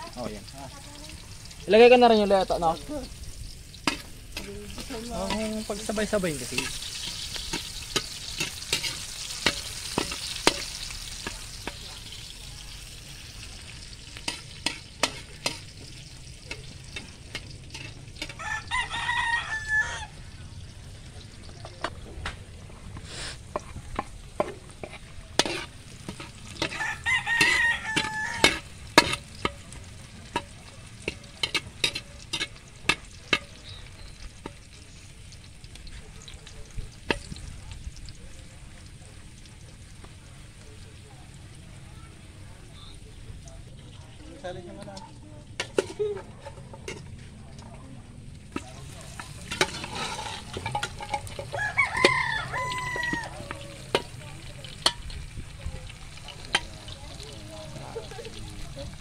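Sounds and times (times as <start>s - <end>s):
light sizzle: 0.0s - 59.0s
metal ladle scraping a wok: 3.6s - 18.8s, 21.7s - 34.8s, 45.5s - 47.3s, 48.5s - 55.3s
rooster crowing: 18.2s - 20.4s, 26.6s - 28.7s, 51.4s - 53.9s.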